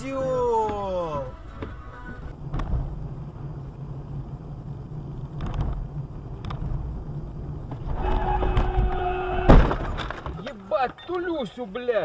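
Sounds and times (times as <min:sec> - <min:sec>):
car engine and road rumble: 0:00.0 - 0:12.0
car horn blast: 0:01.3 - 0:02.3
loud car crash: 0:07.8 - 0:10.5.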